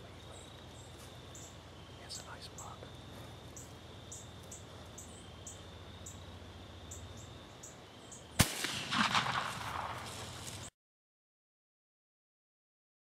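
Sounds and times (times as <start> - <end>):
insects chirping: 0.0 - 10.7
loud gunshot: 8.4 - 10.4.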